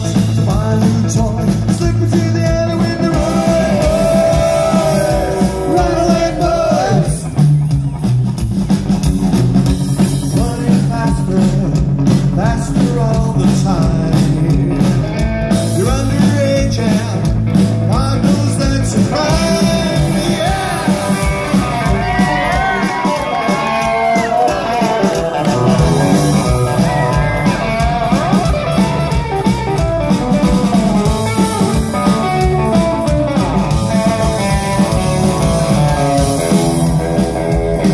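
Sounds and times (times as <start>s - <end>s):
person singing: 0.0s - 7.4s, 10.3s - 15.0s, 17.9s - 28.9s
drums: 0.0s - 37.9s
electric guitar: 0.0s - 37.9s
upright bass: 0.0s - 37.9s.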